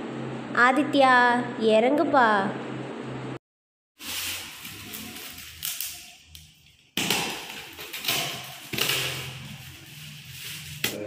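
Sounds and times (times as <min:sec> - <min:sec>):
packing tape tearing: 0:04.0 - 0:11.0.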